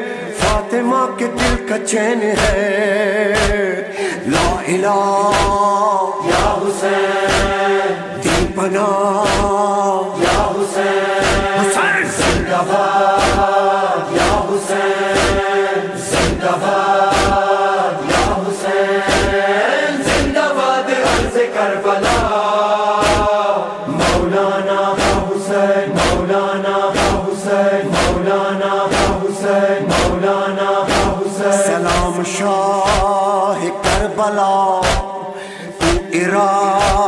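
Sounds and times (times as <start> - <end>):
group chanting devotional song: 0.0 - 37.0
steady sharp strikes: 11.1 - 20.4, 23.0 - 31.3, 35.8 - 36.2.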